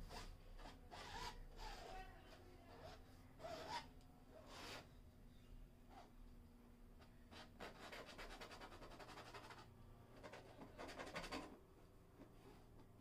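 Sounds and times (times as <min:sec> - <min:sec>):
brush scratching on canvas: 0:00.0 - 0:04.9.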